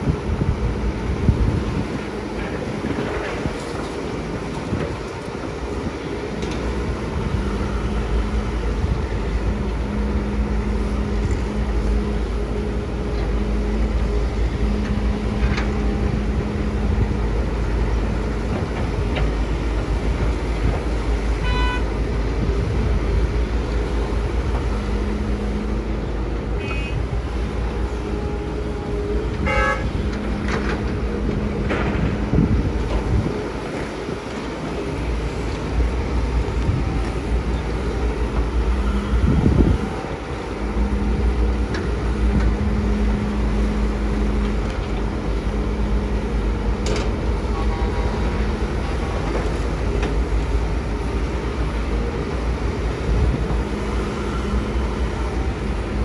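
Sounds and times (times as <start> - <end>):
excavator diesel engine rumbling: 0.0 - 56.0
short horn beeps: 21.4 - 21.9, 26.6 - 27.0, 29.4 - 30.0.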